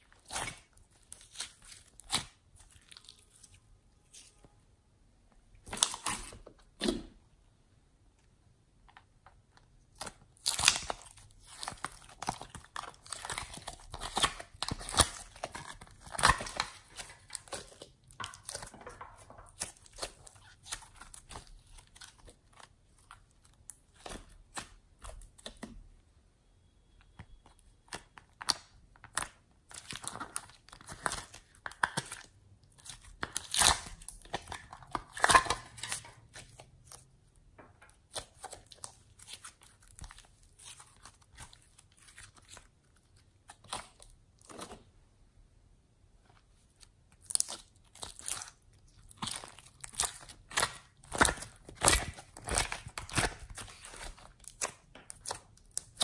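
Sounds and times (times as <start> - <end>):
slime crackling and popping: 0.0 - 4.4, 9.9 - 25.6, 27.6 - 37.1, 46.8 - 56.0.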